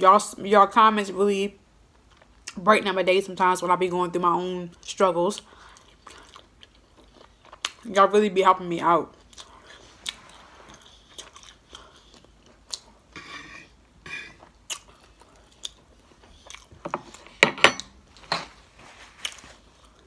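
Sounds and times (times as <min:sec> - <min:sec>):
chewing and mouth sounds: 0:04.8 - 0:07.9, 0:09.1 - 0:13.1, 0:14.4 - 0:17.2.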